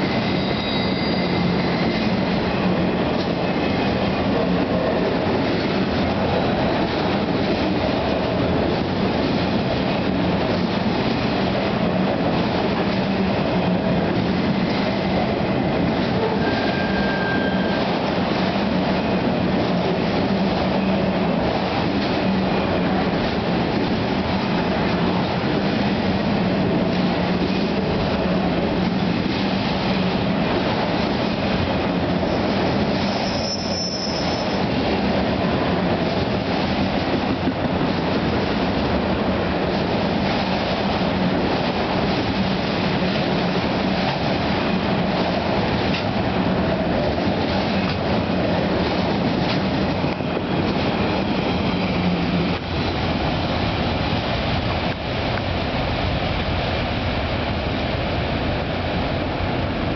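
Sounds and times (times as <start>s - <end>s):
high-pitched wheel squeal: 0.0s - 2.1s, 16.3s - 17.9s, 33.1s - 34.6s
train wheels rumbling on rails: 0.0s - 59.9s.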